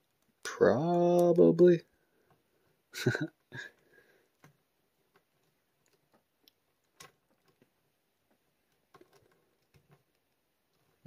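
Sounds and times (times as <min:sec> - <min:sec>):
faint plastic clicks and taps: 0:03.7 - 0:11.0.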